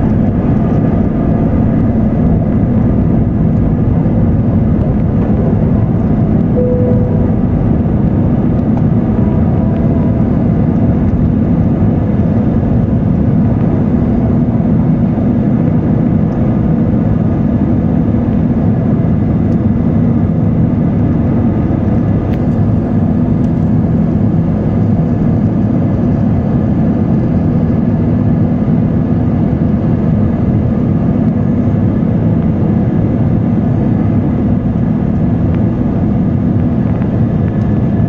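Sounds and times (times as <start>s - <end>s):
jet cabin drone: 0.0s - 38.0s.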